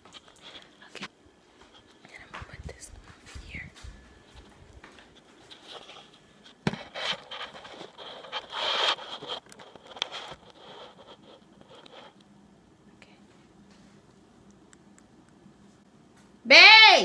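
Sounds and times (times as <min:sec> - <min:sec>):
scraping and rustling: 0:01.6 - 0:12.2.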